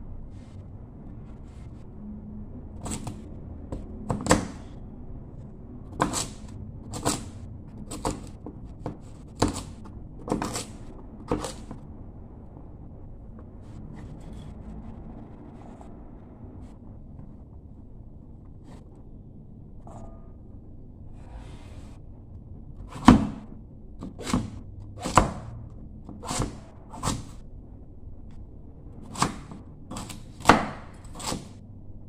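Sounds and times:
knife chopping on wooden board: 6.0 - 11.8, 22.9 - 23.4, 24.0 - 25.5, 26.1 - 27.4, 29.1 - 31.6.

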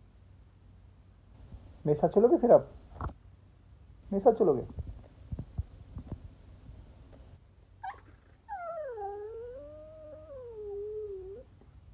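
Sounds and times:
dog howling: 7.8 - 11.5
dog yipping: 7.8 - 11.5.

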